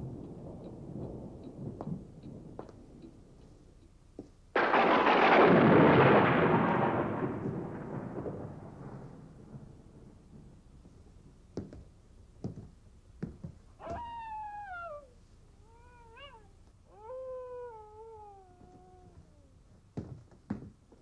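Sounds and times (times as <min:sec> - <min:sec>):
cat meowing: 0:13.8 - 0:19.5.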